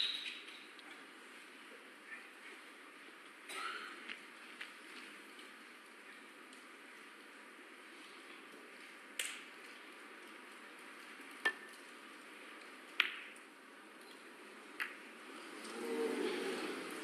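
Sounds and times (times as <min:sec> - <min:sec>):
snooker balls clicking: 0:12.9 - 0:13.4.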